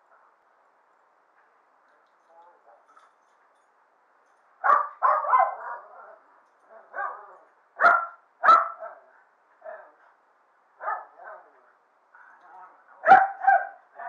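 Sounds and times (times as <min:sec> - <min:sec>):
dogs barking: 0:04.6 - 0:06.2, 0:06.9 - 0:10.0, 0:10.8 - 0:11.4, 0:13.0 - 0:14.0.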